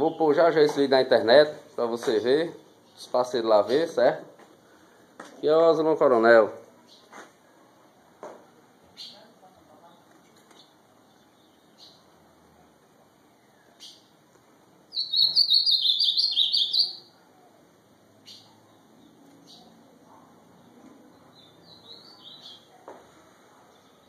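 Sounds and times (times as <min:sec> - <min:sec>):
bird warbling song: 0:10.5 - 0:12.1, 0:14.9 - 0:17.1, 0:21.1 - 0:22.7
high bird chips: 0:14.9 - 0:17.1.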